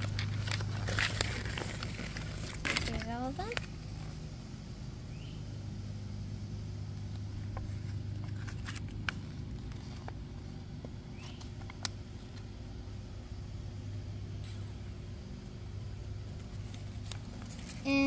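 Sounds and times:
paper rustling: 0:00.0 - 0:04.2, 0:07.0 - 0:12.5, 0:16.3 - 0:18.0
low mechanical hum: 0:00.0 - 0:18.0.

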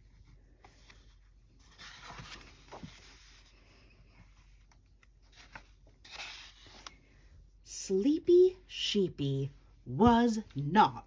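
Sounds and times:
book page turning: 0:00.3 - 0:03.6, 0:04.3 - 0:07.0.

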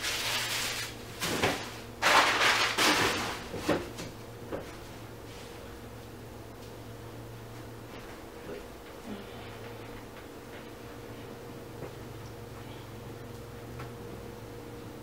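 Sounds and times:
rustling scraping noise: 0:00.0 - 0:03.7
steady low hum: 0:00.0 - 0:15.0.

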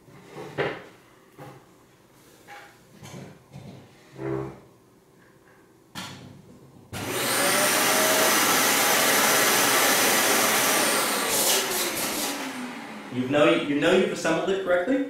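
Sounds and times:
vacuum cleaner motor whining: 0:07.0 - 0:14.0.

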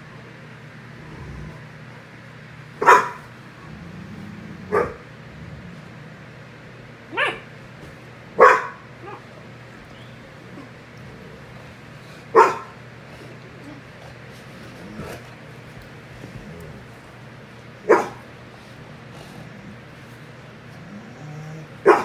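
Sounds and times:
steady low hum: 0:00.0 - 0:22.0
dog barking: 0:02.8 - 0:03.3, 0:04.7 - 0:05.0, 0:07.1 - 0:07.5, 0:08.4 - 0:09.3, 0:12.3 - 0:12.8, 0:17.8 - 0:18.2.

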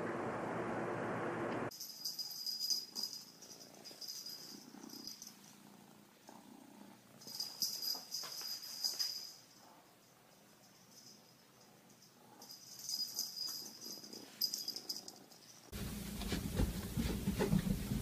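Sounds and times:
high steady ringing tone: 0:01.7 - 0:05.7, 0:07.1 - 0:15.8.

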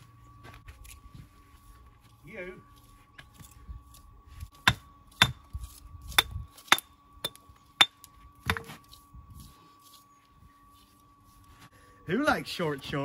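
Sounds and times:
tool striking stone: 0:04.6 - 0:05.4, 0:06.1 - 0:08.8.

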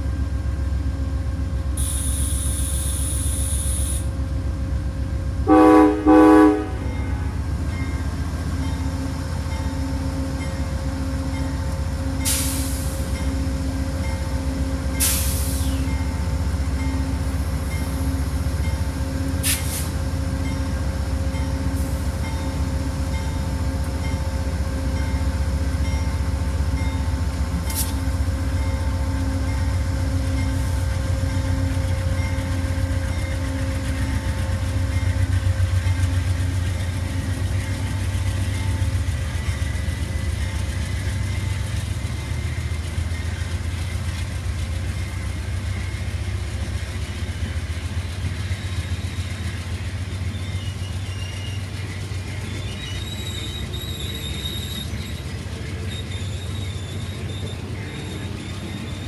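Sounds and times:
diesel locomotive idling: 0:00.0 - 0:59.0
air hissing: 0:01.8 - 0:04.1
train horn blast: 0:05.4 - 0:07.4.

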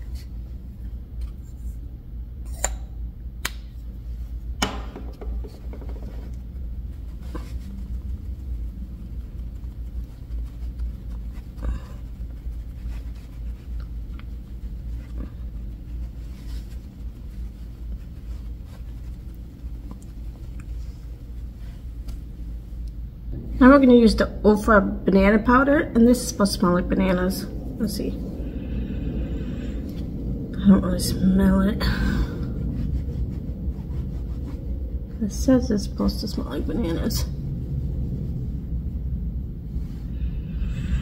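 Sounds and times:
steady low hum: 0:00.0 - 0:41.0
makeup brushes tapping and rubbing: 0:04.6 - 0:06.5.

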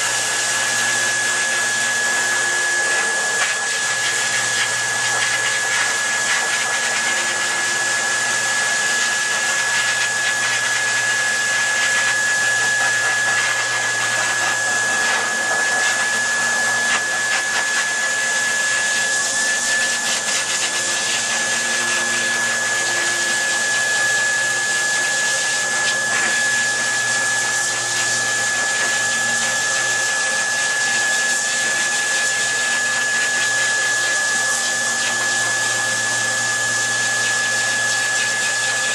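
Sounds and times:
dryer blowing air with motor whine: 0:00.0 - 0:38.9.

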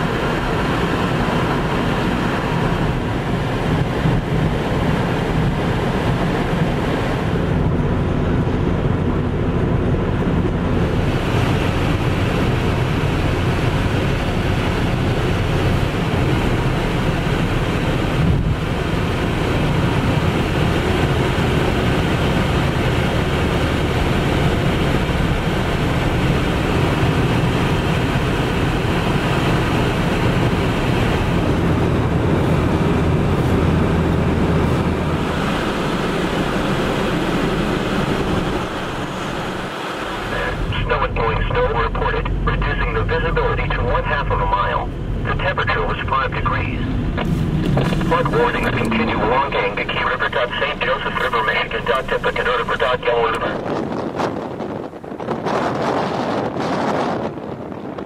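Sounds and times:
wind buffeting microphone: 0:00.0 - 0:40.8, 0:53.4 - 0:58.0
vehicle driving rumble: 0:00.0 - 0:55.0.

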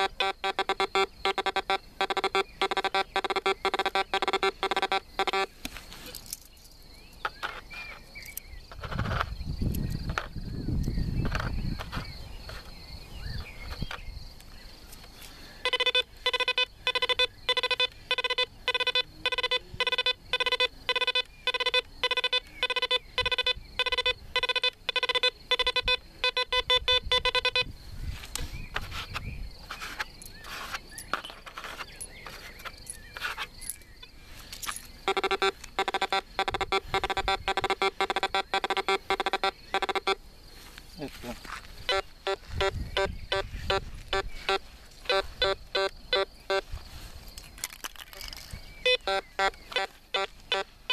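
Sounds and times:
metal detector beeping: 0:00.0 - 0:06.2, 0:15.5 - 0:27.7, 0:28.4 - 0:40.2, 0:41.8 - 0:47.1, 0:47.9 - 0:50.9.

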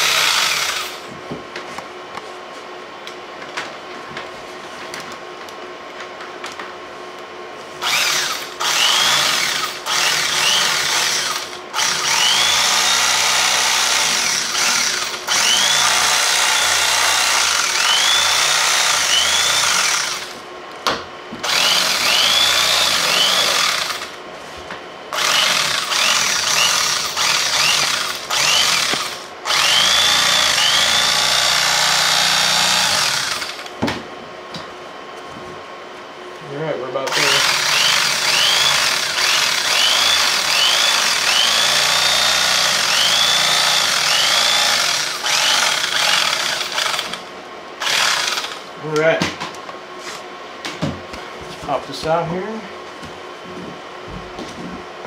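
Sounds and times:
electric knife cutting foam: 0:00.0 - 0:01.1, 0:07.8 - 0:20.4, 0:21.4 - 0:24.2, 0:25.1 - 0:33.8, 0:37.1 - 0:48.7.

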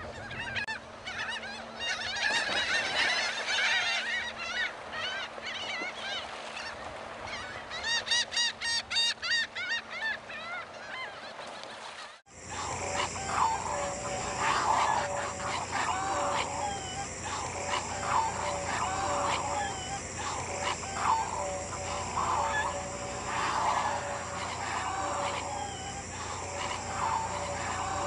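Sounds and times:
gulls calling: 0:00.0 - 0:28.0
seabirds calling low notes: 0:00.0 - 0:28.0
steady high hiss: 0:12.3 - 0:28.0.

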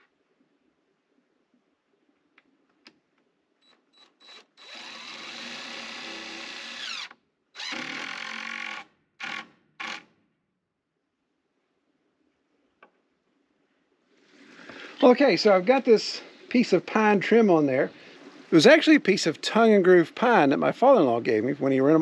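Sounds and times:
cordless drill driving screws: 0:03.7 - 0:10.1.

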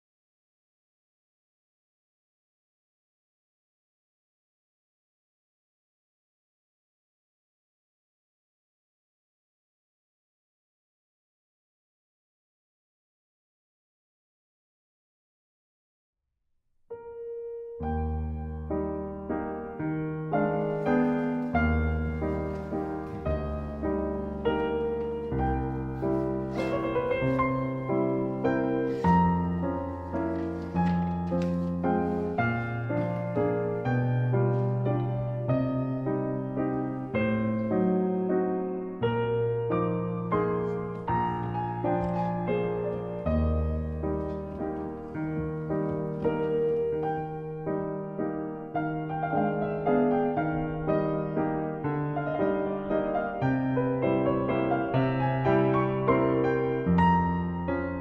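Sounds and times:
piano single notes: 0:16.9 - 0:58.0.

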